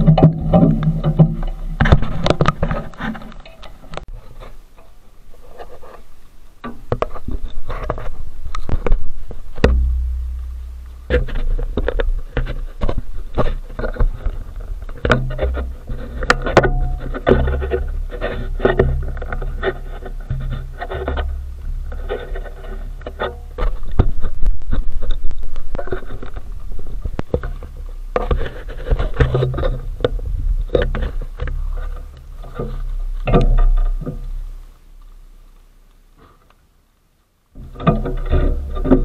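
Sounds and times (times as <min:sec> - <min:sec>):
camera mount knocks and rubbing: 0:00.0 - 0:03.6.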